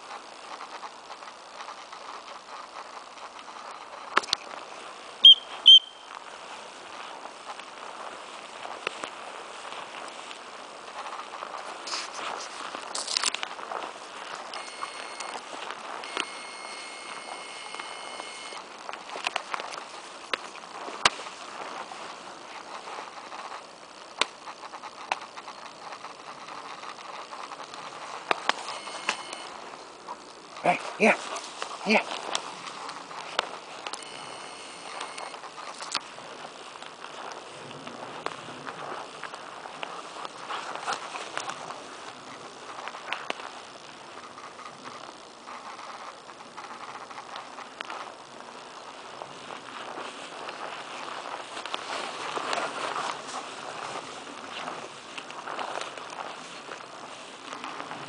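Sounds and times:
moving through long grass: 0.0s - 58.0s
rustling through undergrowth: 0.0s - 58.0s
whistle blasts: 5.2s - 6.1s.

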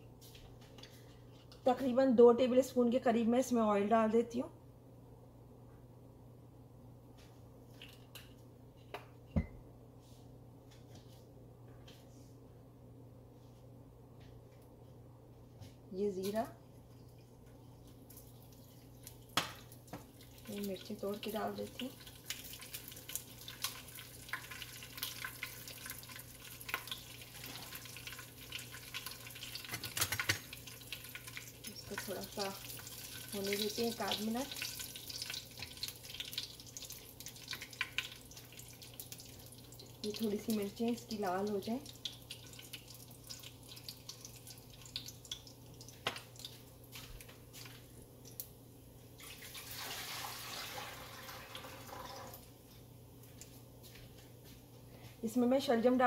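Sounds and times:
spices sizzling in hot oil: 17.1s - 52.4s.

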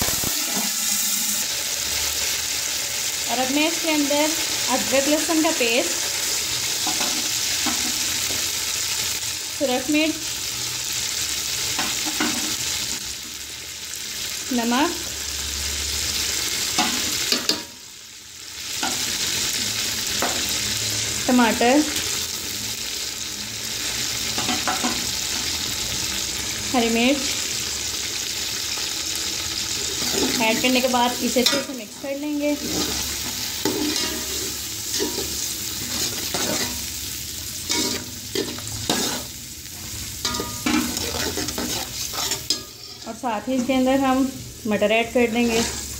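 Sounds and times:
onions sizzling in hot oil: 0.0s - 45.9s
metal spoon scraping a pot: 32.5s - 36.9s, 37.6s - 39.4s, 40.2s - 43.8s, 45.4s - 45.9s.

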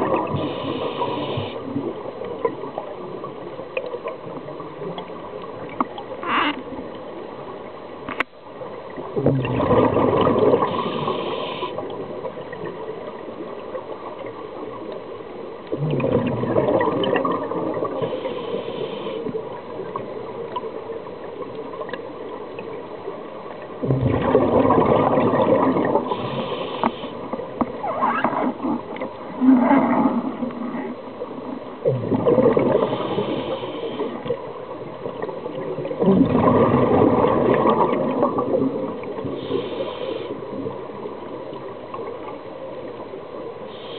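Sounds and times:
exhaled bubbles underwater: 0.0s - 6.9s, 8.8s - 15.0s, 15.6s - 43.9s
regulator hiss: 0.3s - 1.6s, 10.7s - 11.8s, 18.0s - 19.3s, 26.1s - 27.3s, 32.8s - 34.2s, 39.2s - 40.4s, 43.7s - 43.9s.

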